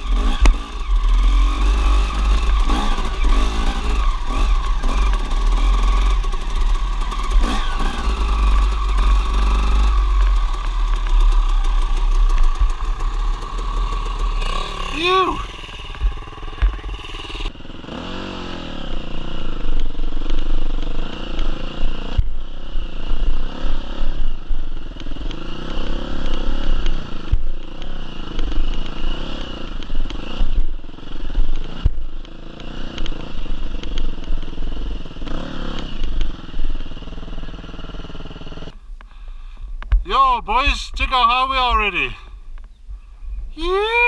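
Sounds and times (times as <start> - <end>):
dirt bike engine revving: 0.0 - 39.3.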